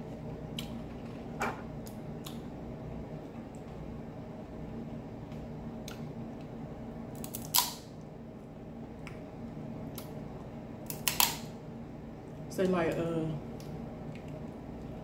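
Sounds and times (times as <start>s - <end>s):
crab shell cracking: 7.2s - 7.8s, 10.9s - 11.5s.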